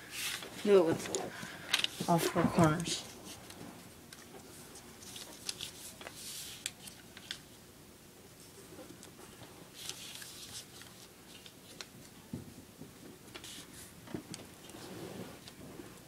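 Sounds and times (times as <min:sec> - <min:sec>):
paper folding and creasing: 0:05.0 - 0:07.5, 0:09.7 - 0:12.0, 0:13.3 - 0:13.9.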